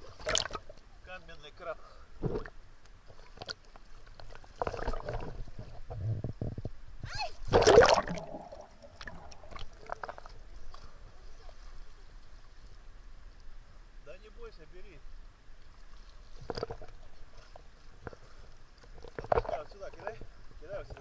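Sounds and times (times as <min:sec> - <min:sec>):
sea water splashing: 0:00.0 - 0:00.9, 0:02.2 - 0:05.9, 0:07.3 - 0:13.4.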